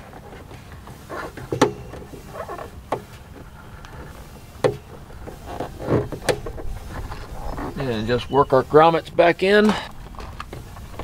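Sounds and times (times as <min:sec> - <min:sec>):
rubber and plastic rubbing and squeaking: 0:00.0 - 0:08.9.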